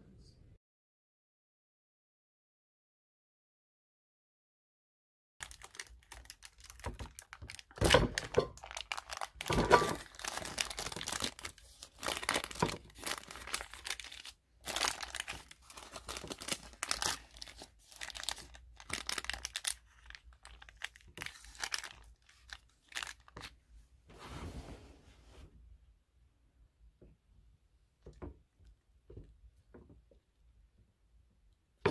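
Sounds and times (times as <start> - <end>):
baking paper crinkling and rustling: 5.4 - 23.6.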